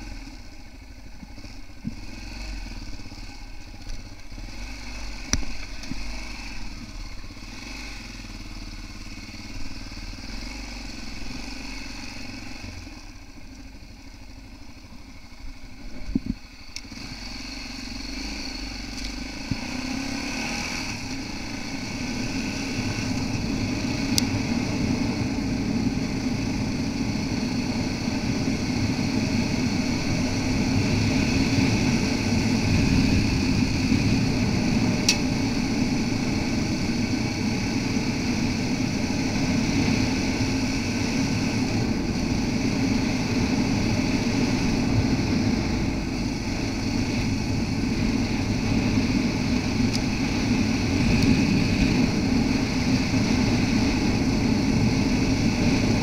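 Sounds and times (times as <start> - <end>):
motorcycle engine running: 0.0 - 56.0
sharp click: 35.0 - 35.3.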